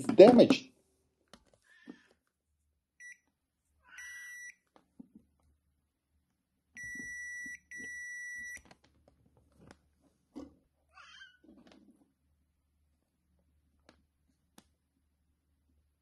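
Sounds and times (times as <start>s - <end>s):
multimeter continuity beeps: 3.0s - 3.2s, 4.0s - 4.6s, 6.8s - 8.6s.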